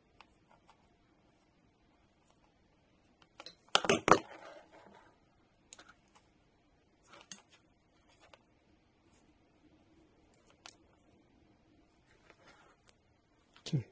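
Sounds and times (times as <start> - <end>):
wires clicking while handled: 10.2 - 11.0.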